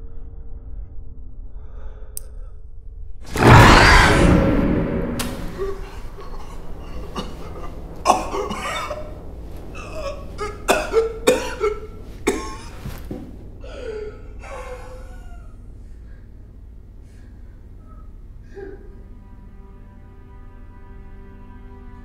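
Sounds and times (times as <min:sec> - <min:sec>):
low hum: 0:00.0 - 0:22.0
man coughing and retching: 0:05.6 - 0:12.9.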